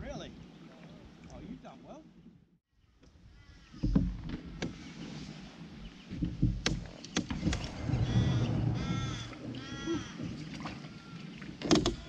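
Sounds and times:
crow cawing: 8.0s - 11.2s
knocks from plastic kayak: 11.6s - 12.0s.

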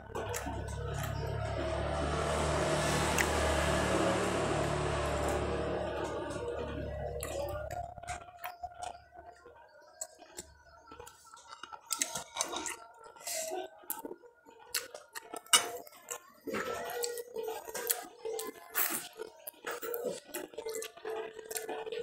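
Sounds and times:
man chewing food: 0.0s - 3.7s, 4.4s - 22.0s.

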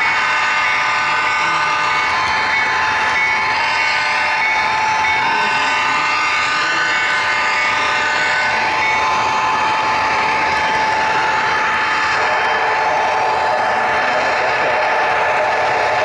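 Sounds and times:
model train running on track: 0.0s - 16.0s
high whine: 1.9s - 16.0s.

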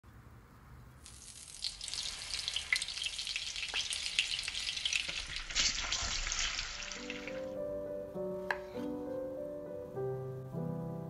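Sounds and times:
crackles and pops: 1.0s - 7.3s
butter and oil sizzling in a pan: 1.0s - 7.5s.

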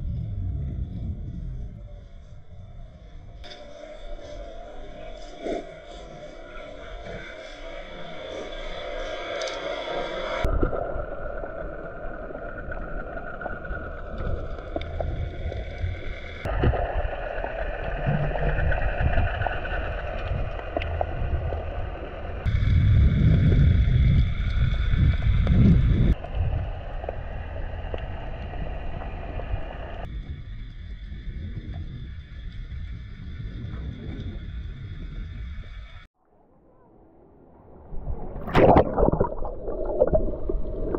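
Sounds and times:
muffled underwater rumble: 0.0s - 40.9s
water sloshing and gurgling: 37.9s - 40.9s.

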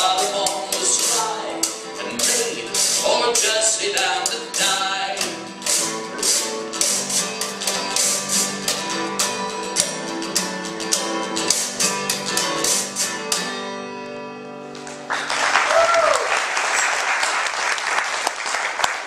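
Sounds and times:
acoustic guitar strumming: 0.0s - 15.1s.

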